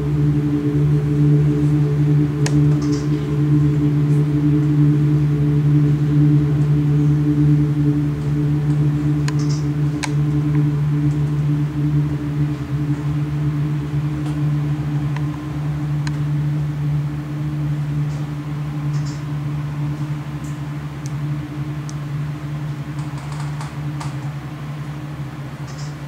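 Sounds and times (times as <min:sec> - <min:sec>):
low droning hum: 0:00.0 - 0:26.0
faint clicks: 0:02.4 - 0:03.2, 0:08.7 - 0:11.2, 0:18.9 - 0:19.2, 0:25.6 - 0:26.0.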